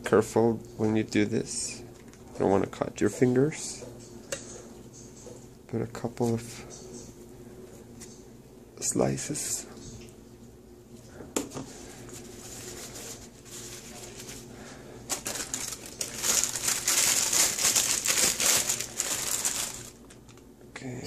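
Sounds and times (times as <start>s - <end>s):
paper wrapping rustling: 11.7s - 20.5s
plastic bag crinkling: 11.8s - 20.5s.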